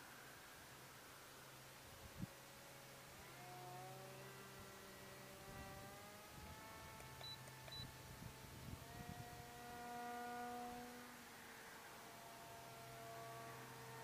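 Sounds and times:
low hum: 1.9s - 14.0s
model airplane motor whine: 2.2s - 14.0s.

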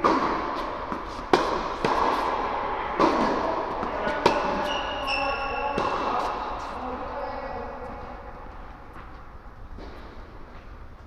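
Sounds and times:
tennis ball struck by rackets: 0.0s - 6.4s
tennis ball bouncing on hard court: 0.0s - 6.5s.

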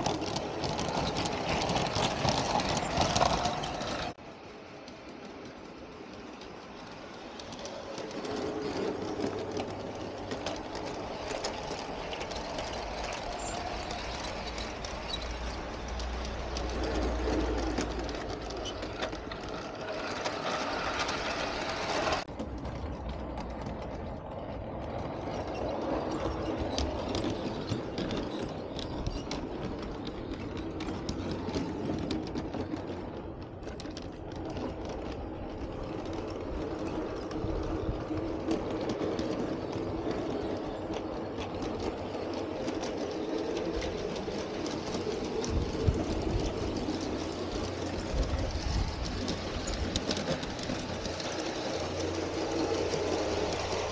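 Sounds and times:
wheels clicking over rail joints: 0.0s - 53.9s
model train motor whir: 7.3s - 22.3s.

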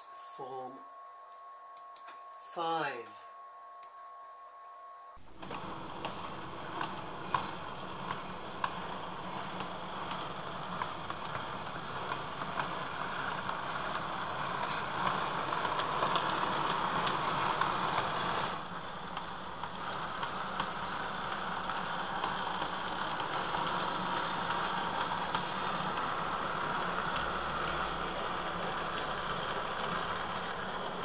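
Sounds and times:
sharp clicks: 1.8s - 2.2s
model train motor and wheel rumble: 5.4s - 31.0s.

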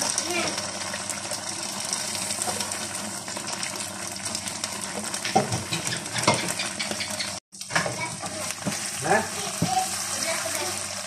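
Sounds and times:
sauce sizzling in a pan: 0.0s - 11.0s.

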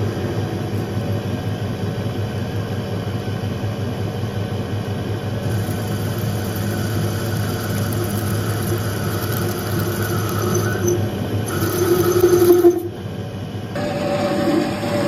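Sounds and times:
metal lathe motor humming: 5.4s - 13.0s, 13.8s - 15.0s.

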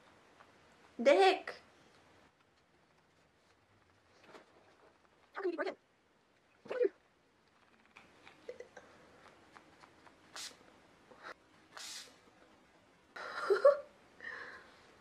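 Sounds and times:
spray bottle mist hissing: 10.3s - 10.6s, 11.7s - 12.2s.

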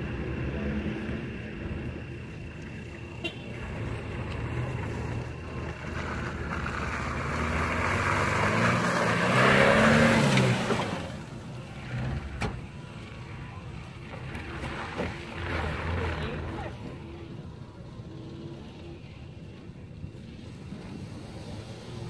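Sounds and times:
car engine revving: 3.6s - 12.7s.

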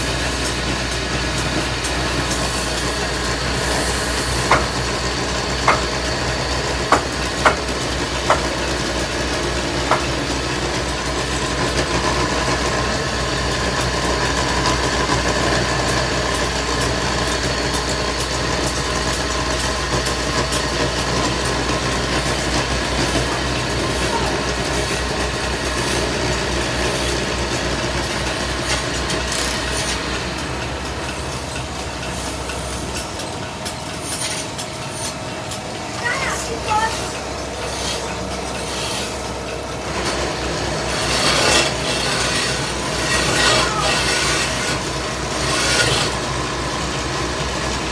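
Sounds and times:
wood lathe hum: 0.0s - 47.9s
rubbing friction on spinning wood: 39.9s - 46.3s.

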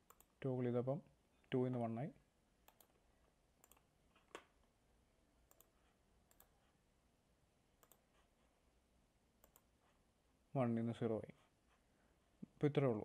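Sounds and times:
computer mouse clicks: 0.0s - 0.4s, 2.6s - 3.0s, 3.6s - 4.6s, 5.4s - 6.6s, 7.8s - 8.1s, 9.4s - 9.7s.

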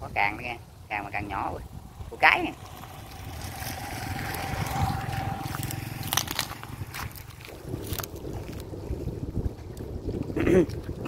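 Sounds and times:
wind rumble on microphone: 0.0s - 11.0s
crabs clicking and scrabbling: 2.6s - 11.0s.

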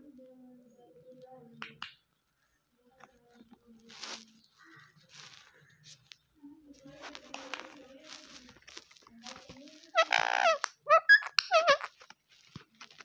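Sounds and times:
parakeet calling: 9.4s - 12.1s.

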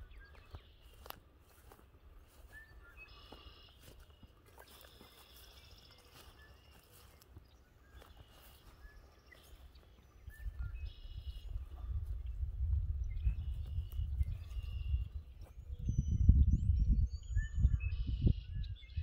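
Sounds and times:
birds trilling and chirping: 0.0s - 19.0s.

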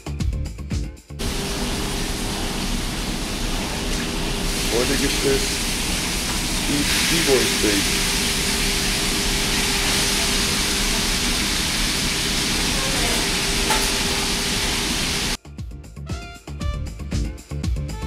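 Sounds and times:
background music: 0.0s - 1.3s, 15.4s - 18.0s
extractor hood hum: 1.2s - 15.4s
steady hiss: 1.2s - 15.4s.

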